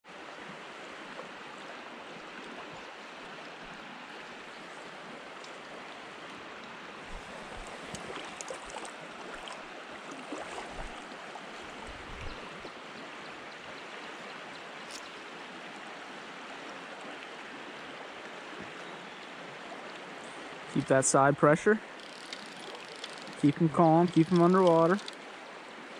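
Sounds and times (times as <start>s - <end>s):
creek rushing over riffles: 20.7s - 25.2s
faint clicks: 22.0s - 23.4s, 24.1s - 25.2s.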